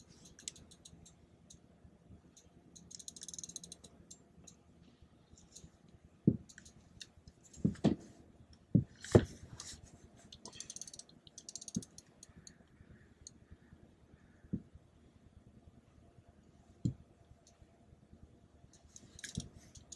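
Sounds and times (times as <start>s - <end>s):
fishing reel clicking: 0.2s - 1.6s, 2.4s - 4.2s, 10.4s - 12.6s, 18.7s - 19.9s.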